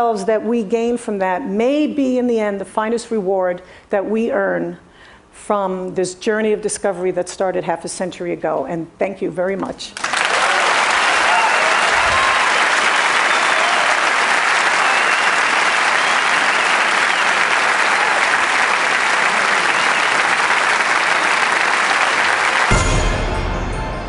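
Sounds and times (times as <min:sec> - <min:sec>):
audience applauding: 0:10.0 - 0:23.4.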